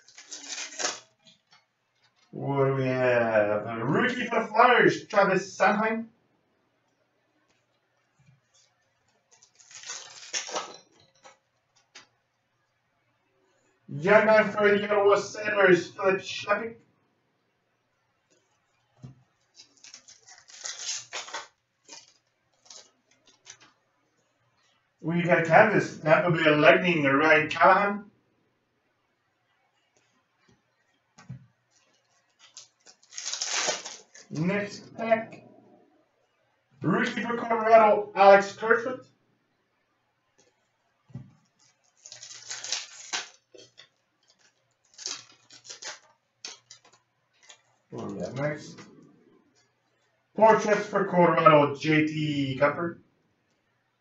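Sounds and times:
cards rustling with sharp clicks: 0:00.0 - 0:02.3, 0:08.6 - 0:12.2, 0:19.4 - 0:23.8, 0:31.2 - 0:34.5, 0:41.4 - 0:47.7
wrapper crinkling: 0:00.0 - 0:02.3, 0:08.4 - 0:12.2, 0:19.4 - 0:23.8, 0:31.6 - 0:34.5, 0:41.4 - 0:48.8.

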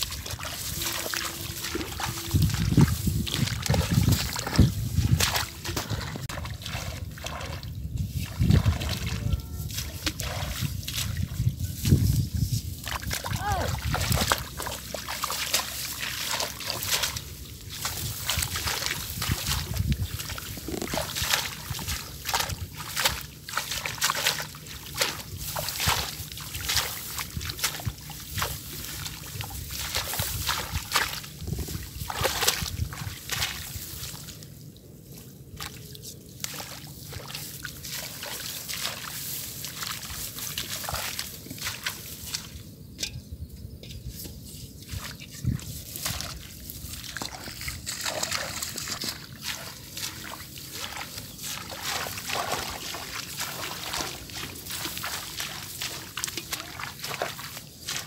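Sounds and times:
water trickling: 0:00.0 - 0:12.0, 0:44.9 - 0:58.0
water sloshing and splashing: 0:00.0 - 0:43.2, 0:44.2 - 0:58.0.

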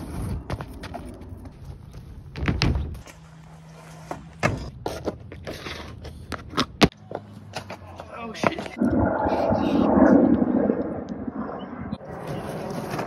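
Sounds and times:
shoes scraping on metal: 0:00.0 - 0:08.7.

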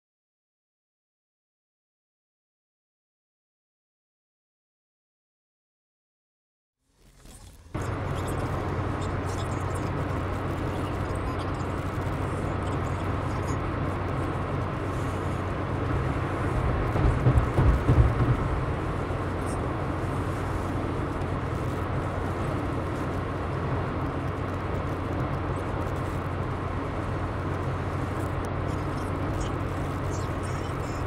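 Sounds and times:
car engine and road noise: 0:06.8 - 0:31.0
low thumps: 0:16.5 - 0:19.3.

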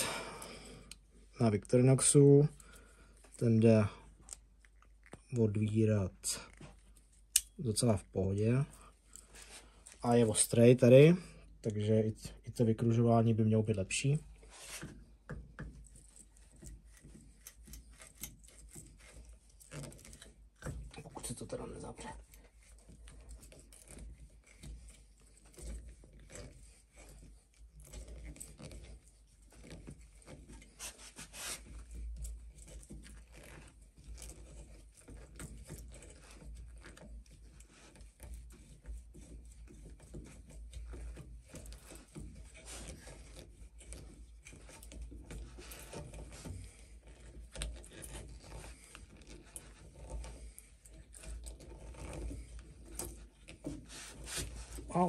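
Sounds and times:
steel awl scraping into wood: 0:42.3 - 0:55.0.

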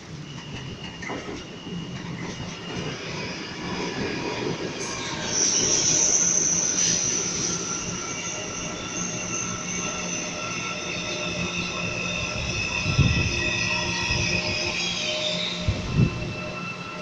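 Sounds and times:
low train rumble: 0:00.0 - 0:17.0
train wheel squeal: 0:00.0 - 0:17.0
train motor whine: 0:04.8 - 0:17.0.

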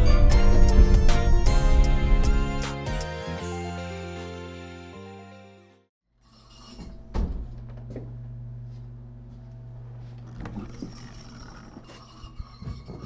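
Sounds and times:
electrical motor hum: 0:06.4 - 0:13.0.

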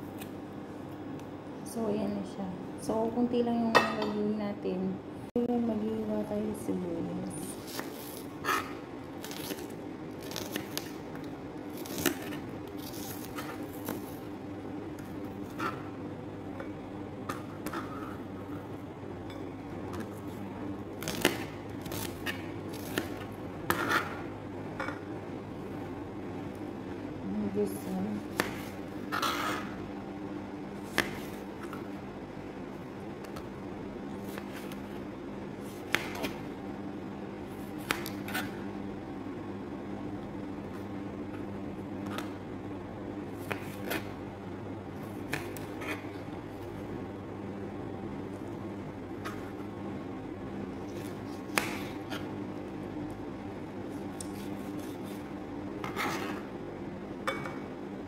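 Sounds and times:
steady low hum: 0:00.0 - 0:58.0
knife slicing onion on board: 0:07.5 - 0:11.0, 0:21.0 - 0:24.2, 0:28.2 - 0:29.8, 0:30.8 - 0:31.9, 0:35.6 - 0:36.5, 0:37.5 - 0:38.6, 0:43.4 - 0:44.2, 0:45.0 - 0:46.2, 0:50.9 - 0:52.3, 0:54.0 - 0:56.5.

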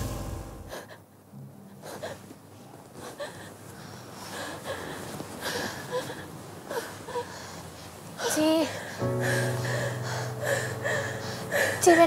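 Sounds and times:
woman gasping and breathing hard: 0:08.2 - 0:12.0
woman whimpering: 0:08.2 - 0:12.0.

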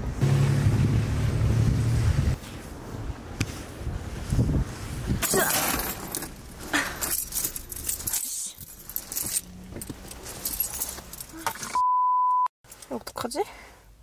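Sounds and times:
rustling of handling: 0:05.5 - 0:11.6
keys jangling: 0:05.5 - 0:11.8.

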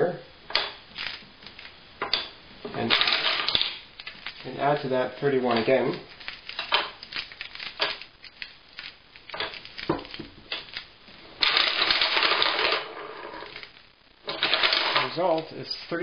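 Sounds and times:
glass marbles clicking on wood: 0:00.5 - 0:04.4, 0:05.5 - 0:08.5
dense wooden clatter of marbles: 0:00.6 - 0:16.0.

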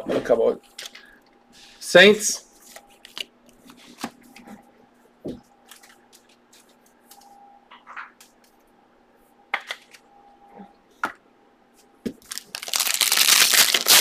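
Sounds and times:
faint steady hum: 0:00.0 - 0:14.0
cards rustling: 0:12.3 - 0:14.0.

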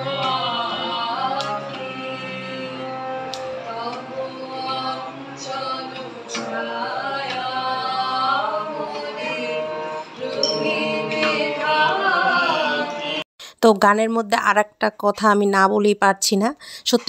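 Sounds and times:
woman singing: 0:00.0 - 0:13.2.

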